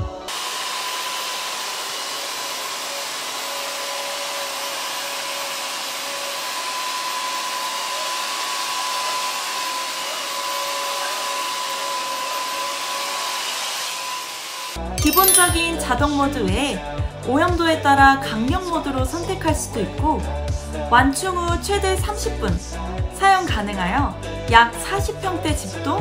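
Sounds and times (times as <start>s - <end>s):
vacuum cleaner running: 0.0s - 14.7s.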